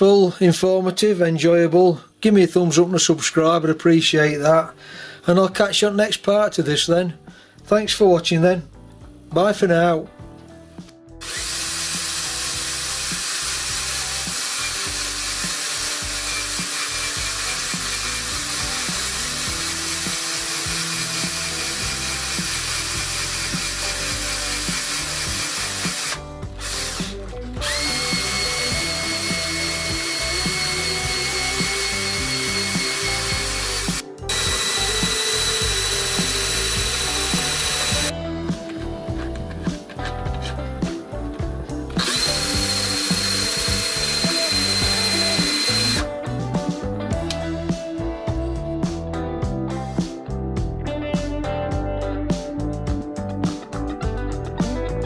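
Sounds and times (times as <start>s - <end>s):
cordless drill driving lathe: 11.2s - 38.1s, 41.9s - 46.1s.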